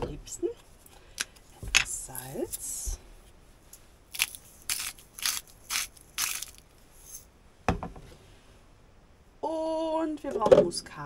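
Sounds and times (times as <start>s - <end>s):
salt mill grinding: 4.1s - 7.2s
knock: 7.7s - 8.0s.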